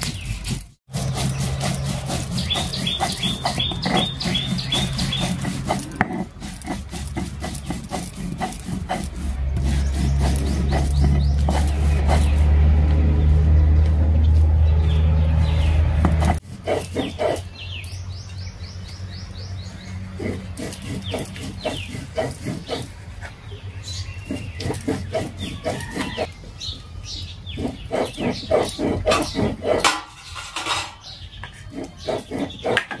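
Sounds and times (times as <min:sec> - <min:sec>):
birds chirping: 0:00.0 - 0:33.0
loud low rumble: 0:09.2 - 0:16.4
hens clucking: 0:20.1 - 0:26.4.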